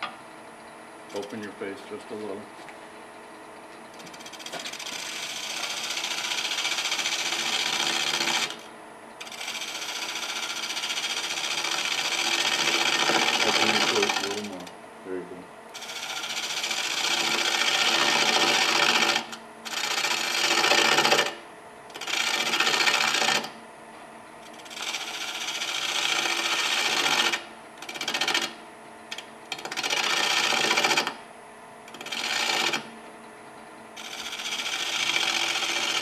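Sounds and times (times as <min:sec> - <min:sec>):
lathe running quietly: 0:00.0 - 0:31.2, 0:31.8 - 0:36.0
lathe gouge scraping wood: 0:04.0 - 0:08.6, 0:09.2 - 0:14.5, 0:15.8 - 0:21.3, 0:21.9 - 0:23.6, 0:24.5 - 0:28.5, 0:29.2 - 0:31.0, 0:31.9 - 0:32.9, 0:34.0 - 0:36.0.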